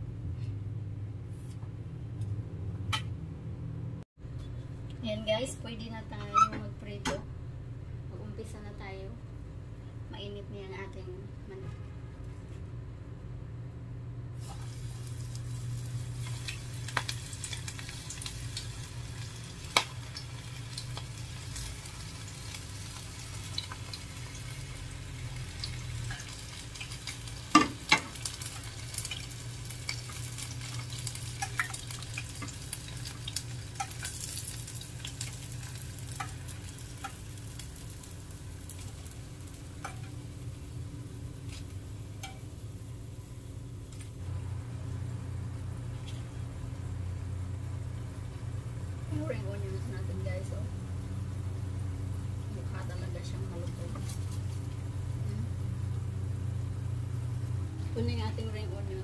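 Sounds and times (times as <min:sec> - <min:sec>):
food sizzling in hot oil: 0:14.4 - 0:43.2
metal tongs tapping a pan: 0:33.8 - 0:34.4, 0:39.8 - 0:40.2, 0:42.2 - 0:42.5.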